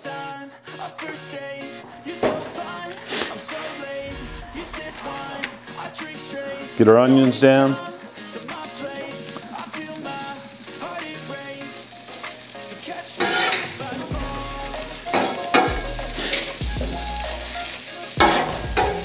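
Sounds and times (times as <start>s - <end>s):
onions sizzling on griddle: 2.7s - 19.0s
metal spatula scraping griddle: 13.2s - 14.1s, 15.1s - 16.6s.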